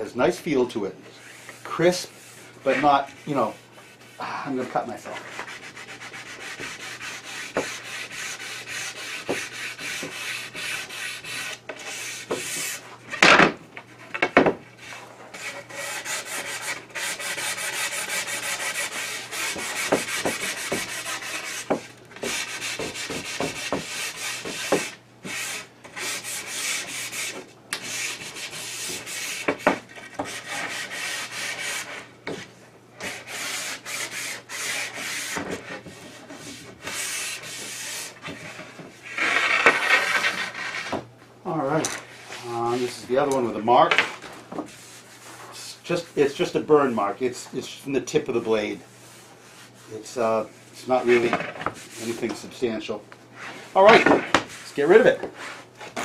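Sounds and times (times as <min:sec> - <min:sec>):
sandpaper rasping on wood: 0:01.2 - 0:12.8, 0:14.9 - 0:32.1, 0:33.0 - 0:40.9.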